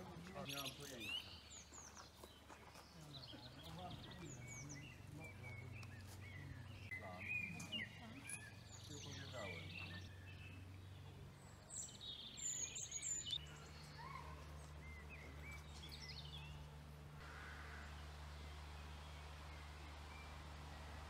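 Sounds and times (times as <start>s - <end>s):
wild birds chirping and singing: 0.0s - 21.0s.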